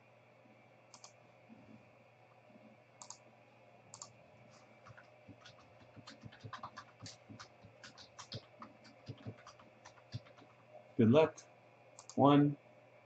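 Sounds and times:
computer keys clicking: 0.9s - 1.2s, 3.0s - 3.2s, 3.9s - 10.5s, 12.0s - 12.2s.

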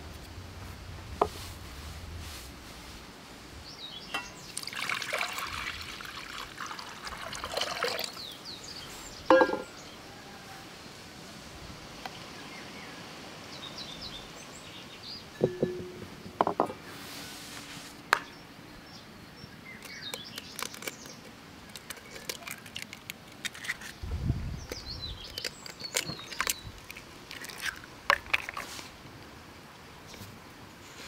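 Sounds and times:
birds chirping: 3.6s - 5.8s, 12.1s - 17.0s, 18.1s - 22.8s
eggshells cracking on glass bowl: 19.9s - 23.9s, 24.7s - 28.6s.

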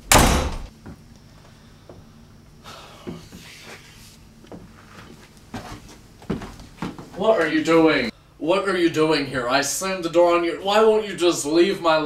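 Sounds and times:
wooden door slamming: 0.0s - 0.7s.

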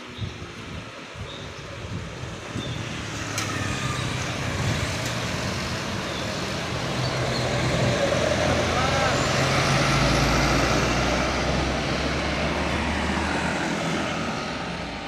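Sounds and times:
road traffic: 0.0s - 15.0s
truck engine passing: 2.3s - 15.0s.

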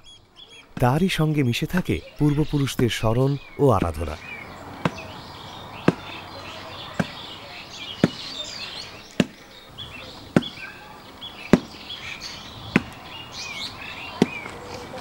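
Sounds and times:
small birds chirping: 0.0s - 15.0s
sharp knocks: 5.8s - 6.1s, 8.0s - 8.3s, 10.3s - 10.6s, 11.5s - 11.8s, 12.7s - 13.0s.

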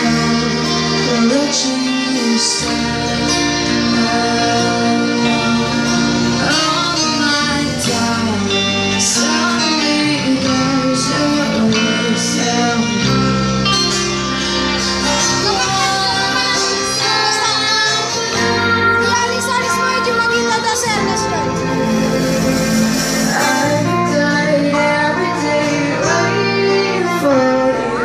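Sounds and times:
bass: 0.0s - 28.0s
drums: 0.0s - 28.0s
keyboard: 0.0s - 28.0s
strummed acoustic guitar: 0.0s - 28.0s
girl singing: 15.1s - 21.1s.

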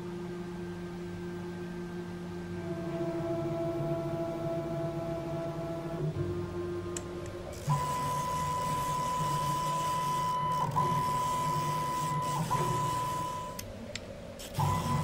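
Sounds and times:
stepper motor whine: 2.5s - 13.6s, 14.4s - 15.0s.

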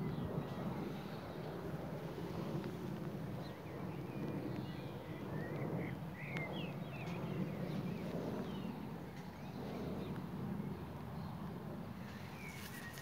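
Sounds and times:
faint birds chirping: 0.0s - 13.0s
wind rumble on microphone: 0.0s - 13.0s.

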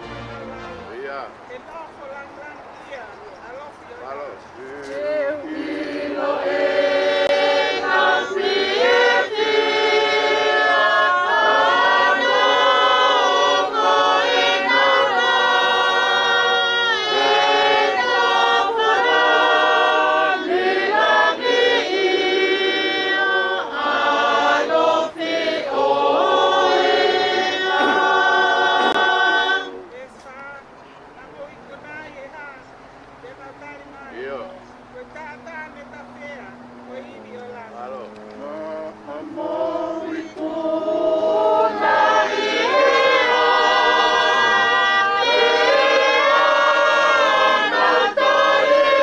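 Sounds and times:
group singing a hymn: 4.4s - 30.2s, 36.1s - 49.0s.

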